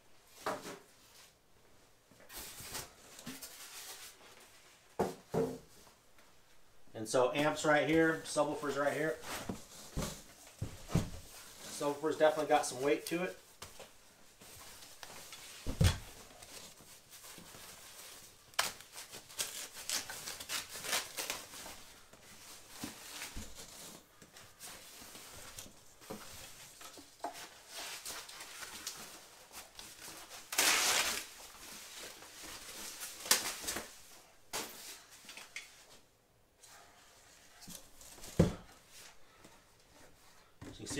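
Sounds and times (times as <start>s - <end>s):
plastic wrapping rustling: 7.4s - 36.0s.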